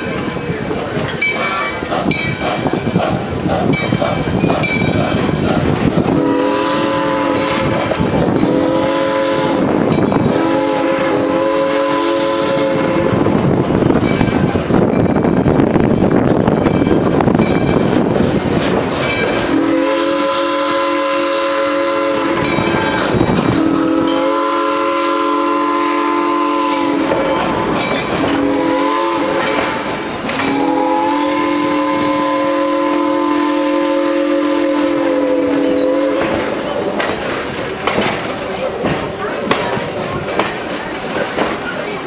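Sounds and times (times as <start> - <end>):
coaches rumbling on rails: 0.0 - 42.0
steam locomotive whistle blasts: 6.1 - 13.4, 19.4 - 36.6.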